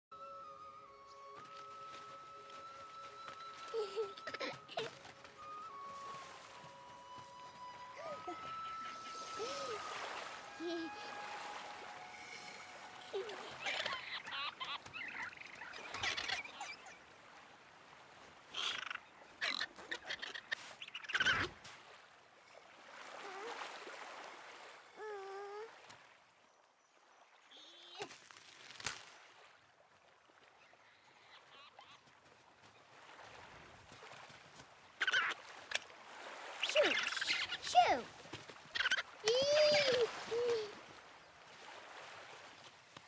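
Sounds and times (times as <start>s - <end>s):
small waves washing onto sand: 1.5s - 26.4s, 32.0s - 43.0s
toddler babbling and cooing: 10.6s - 11.2s, 25.0s - 25.7s, 39.2s - 40.8s.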